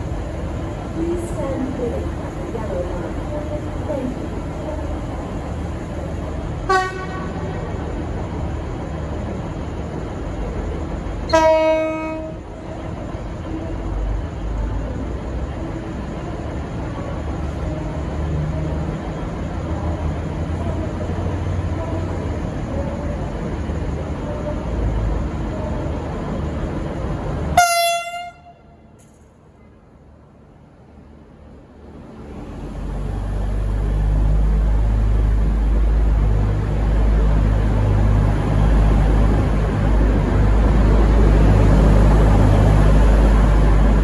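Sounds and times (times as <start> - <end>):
diesel train rumble: 0.0 - 44.0
train horn blasts: 6.7 - 7.4, 11.3 - 12.4, 27.6 - 29.0.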